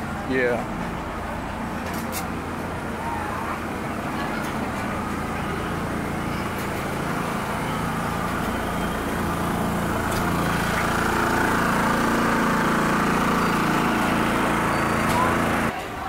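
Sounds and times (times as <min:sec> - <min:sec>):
engine running: 0:00.0 - 0:15.8.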